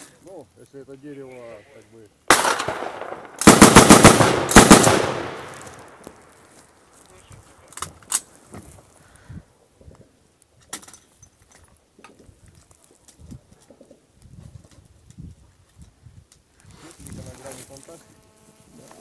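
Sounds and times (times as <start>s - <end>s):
automatic gunfire bursts: 2.3s - 5.9s
single gunshots: 2.3s - 6.1s.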